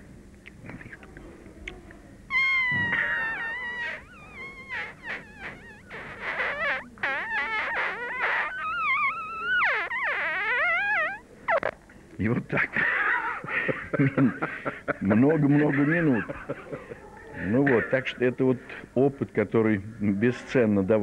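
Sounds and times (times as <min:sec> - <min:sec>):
man imitating mosquito whine: 0:02.3 - 0:11.7.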